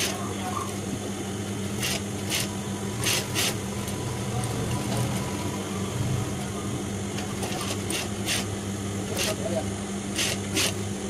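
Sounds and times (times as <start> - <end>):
sewing machine motor humming: 1.6 - 6.5, 7.2 - 8.5, 9.1 - 11.0.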